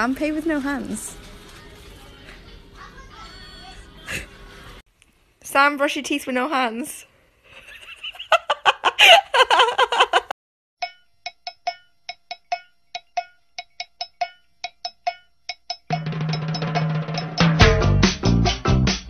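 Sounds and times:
music with low note: 10.8s - 19.0s.

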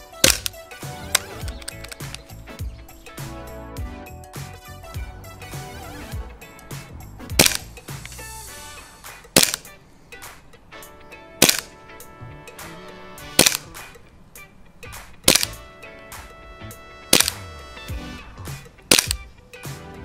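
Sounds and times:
sharp crack: 0.0s - 3.4s, 6.5s - 10.7s, 11.3s - 16.4s, 17.0s - 19.8s
instrumental music: 0.0s - 20.0s.

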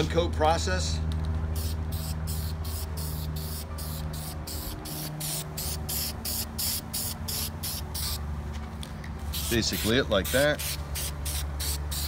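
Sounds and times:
aerosol spray can hissing: 1.6s - 8.2s.

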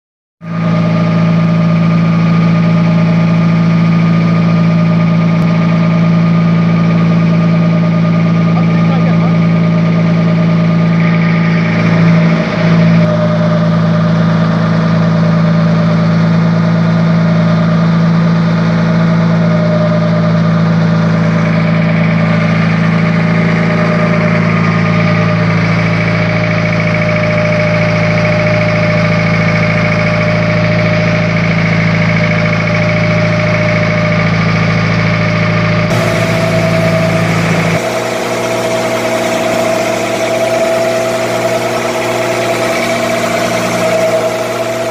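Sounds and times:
boat engine droning: 0.4s - 17.8s, 18.4s - 44.9s.

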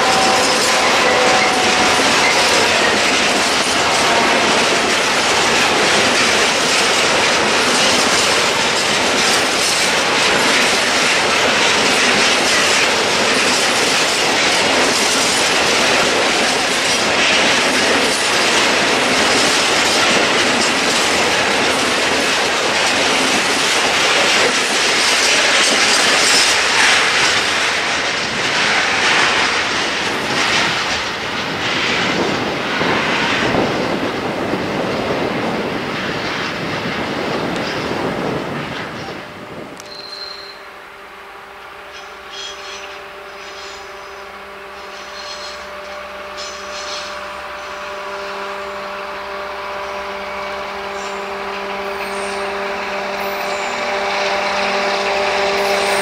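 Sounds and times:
wheels clattering over rail joints: 0.0s - 39.2s
freight train rumbling past: 0.0s - 56.0s.

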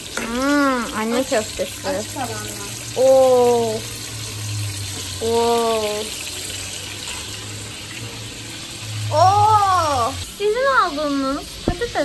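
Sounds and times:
meatballs sizzling in oil: 0.0s - 12.0s.

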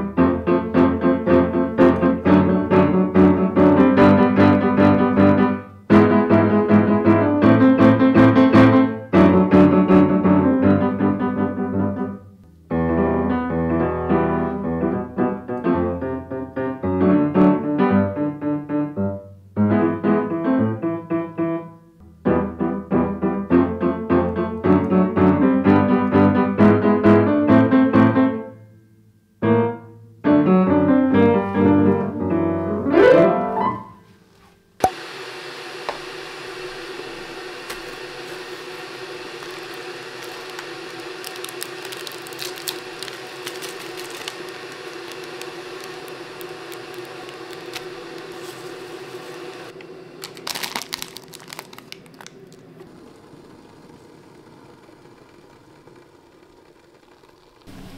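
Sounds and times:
upright piano playing: 0.0s - 28.5s, 29.4s - 34.2s.

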